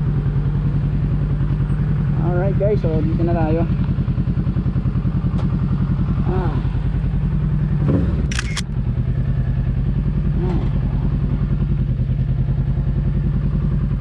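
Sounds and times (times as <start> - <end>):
motorcycle engine idling: 0.0 - 14.0
sharp clicks: 8.2 - 8.8.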